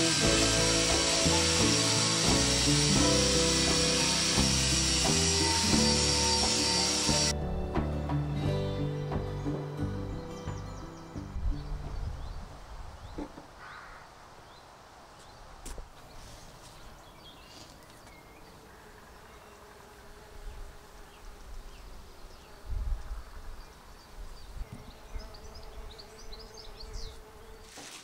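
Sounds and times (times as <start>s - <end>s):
bee buzzing in flight: 0.0s - 7.3s, 18.7s - 28.0s.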